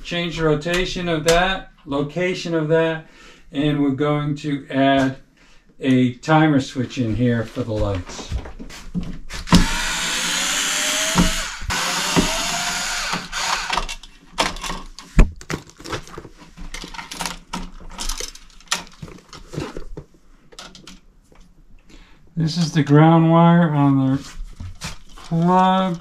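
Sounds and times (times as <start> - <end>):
cordless screwdriver running: 9.5 - 13.9
clicks and knocks of handling: 13.8 - 21.5.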